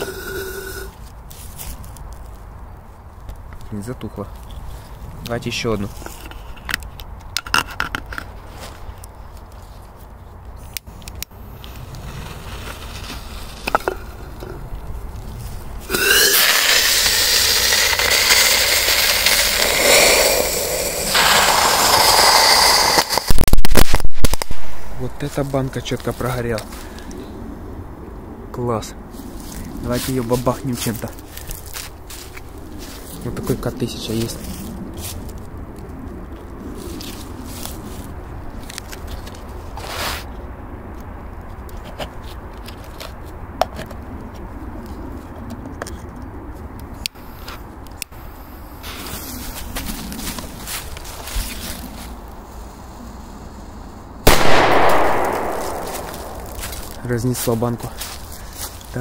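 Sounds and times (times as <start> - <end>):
firework hissing and whistling: 0.0 - 1.0, 11.5 - 14.4, 15.8 - 25.2, 52.5 - 57.0
steady low rumble: 10.8 - 16.1, 46.2 - 59.0
short hiss: 15.9 - 24.1
sharp bangs: 54.3 - 57.0.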